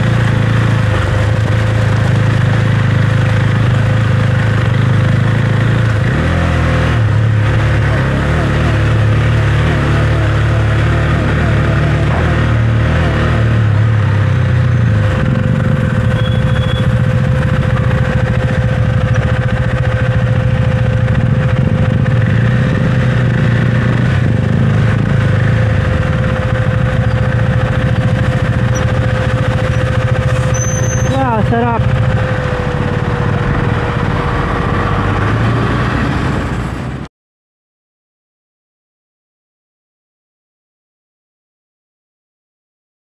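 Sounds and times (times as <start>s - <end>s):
motorcycle engine running: 0.0s - 37.0s
steady whine: 25.9s - 35.5s.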